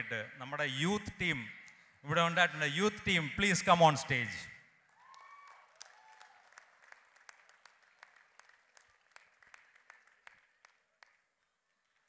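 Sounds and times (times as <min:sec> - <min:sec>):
faint scattered applause: 0:04.8 - 0:12.0.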